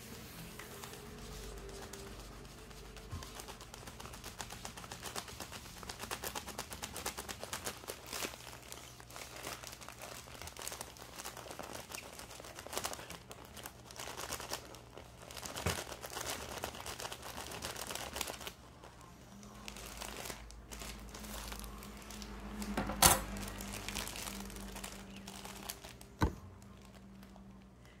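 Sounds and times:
plastic wrap crinkling: 0.0 - 28.0.

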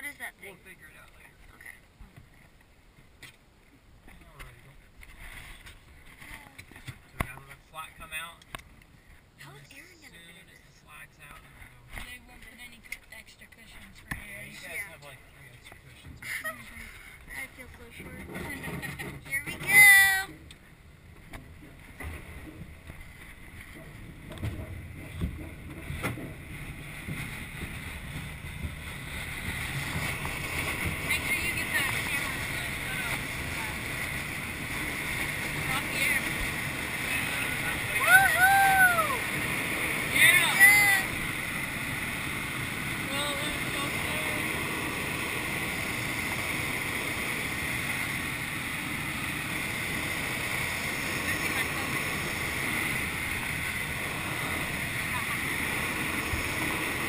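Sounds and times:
wheel rumble and rattle: 0.0 - 57.0
rush of air: 20.7 - 57.0.

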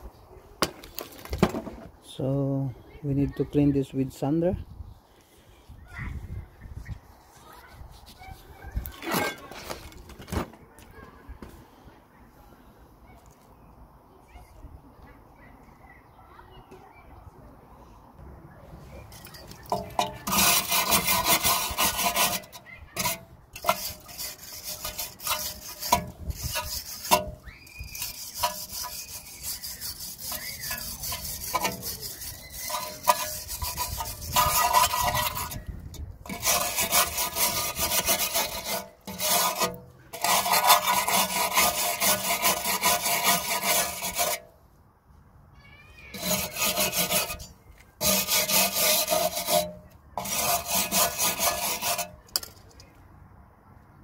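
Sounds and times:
wire brush scraping rusty steel: 19.1 - 44.6, 46.1 - 52.8.

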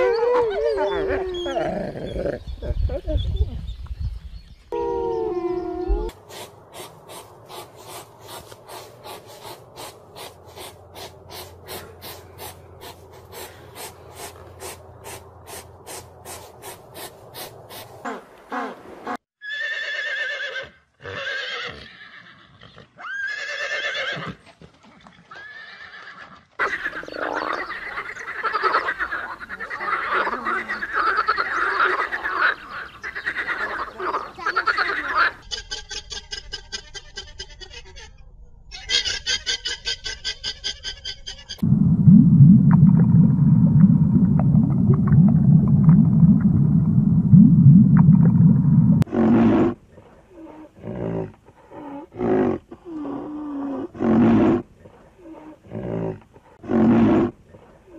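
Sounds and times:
horse neighing: 19.4 - 24.4.

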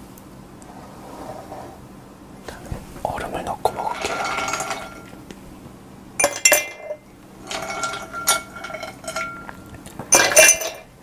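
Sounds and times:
ice cubes clinking in glass: 3.9 - 5.2, 6.2 - 10.9.

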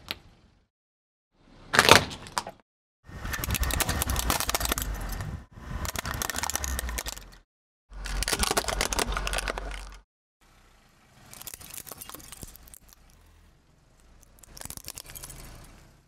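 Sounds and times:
plastic cups cracking and crunching: 3.4 - 5.2, 5.8 - 7.4, 8.0 - 10.0, 11.3 - 13.2, 14.1 - 15.7.

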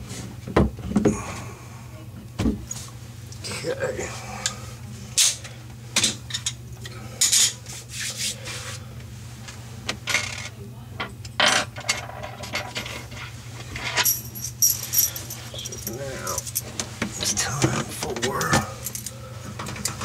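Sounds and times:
steady low hum: 0.0 - 20.0
tools clinking and clattering: 11.4 - 16.9.

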